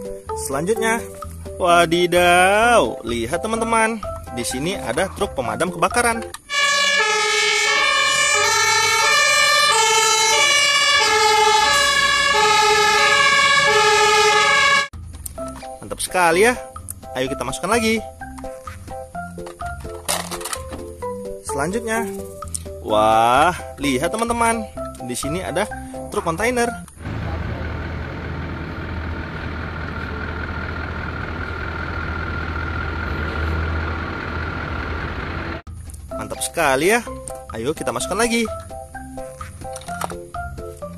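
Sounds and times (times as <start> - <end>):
two-tone fire engine sirens: 6.5 - 14.9
truck diesel engine running: 6.5 - 15.0, 27.0 - 35.7.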